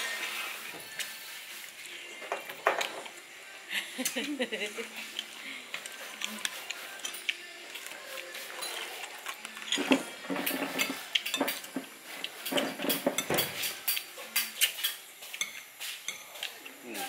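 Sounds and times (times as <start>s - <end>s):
cutlery clinking on plates: 2.2s - 3.2s, 8.4s - 17.0s.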